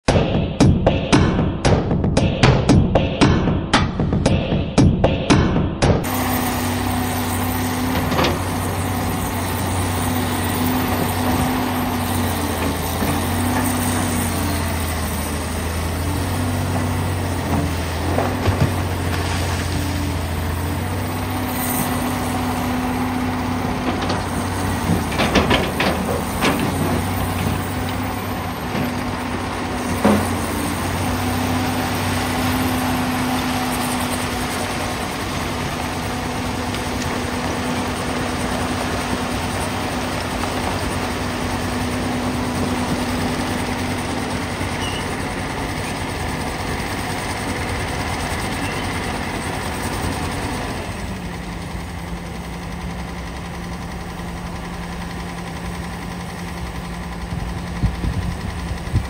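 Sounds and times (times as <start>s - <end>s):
excavator diesel engine under load: 6.0s - 59.0s
excavator bucket clanking: 7.4s - 14.8s, 15.6s - 21.5s, 22.4s - 33.7s.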